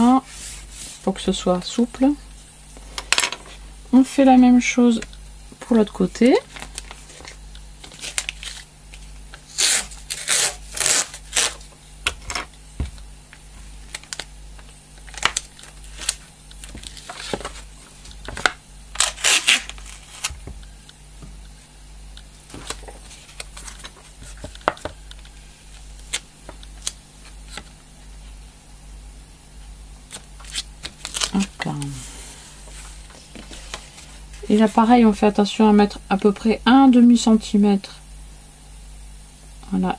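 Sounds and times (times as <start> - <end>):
packing tape ripping off roll: 6.5 - 8.7, 9.4 - 11.7, 13.8 - 20.4, 30.1 - 31.5.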